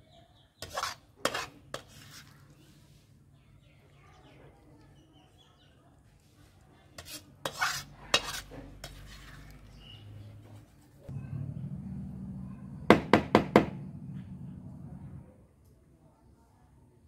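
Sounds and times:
metal spatula scraping a pan: 0.6s - 2.7s, 7.0s - 10.1s
low hum: 11.1s - 15.4s.

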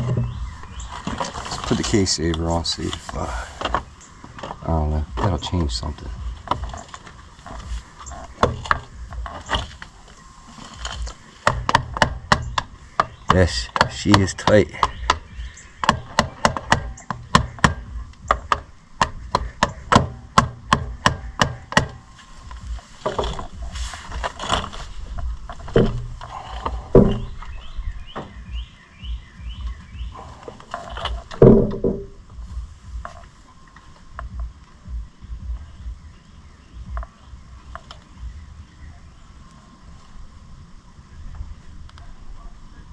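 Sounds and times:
hand tools clanking on metal: 0.0s - 27.5s
bird chirping: 0.0s - 42.9s.

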